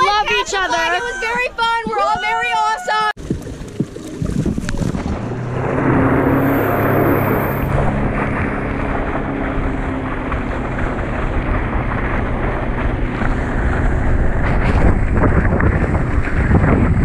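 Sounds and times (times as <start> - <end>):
water spraying off water skis: 3.2 - 17.0
wind buffeting microphone: 3.2 - 17.0
faint engine hum: 3.4 - 15.0.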